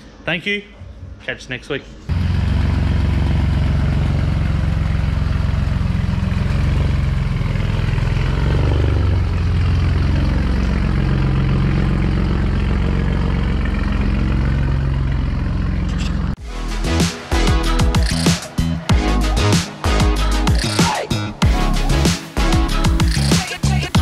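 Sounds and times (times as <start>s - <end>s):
car engine idling: 2.1s - 16.4s.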